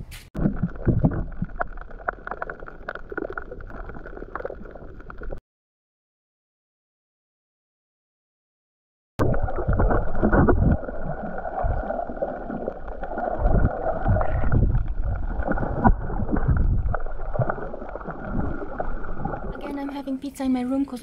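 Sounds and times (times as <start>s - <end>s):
muffled underwater rushing water: 0.4s - 5.4s, 9.2s - 20.4s
low rumbling: 9.2s - 19.9s.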